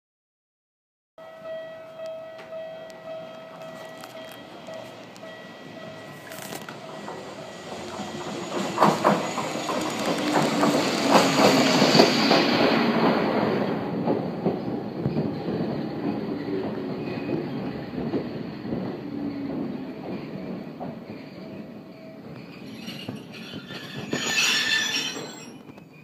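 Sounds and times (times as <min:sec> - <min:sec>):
train wheel squeal: 0:01.5 - 0:26.0
train wheels clacking over rail joints: 0:06.0 - 0:25.9.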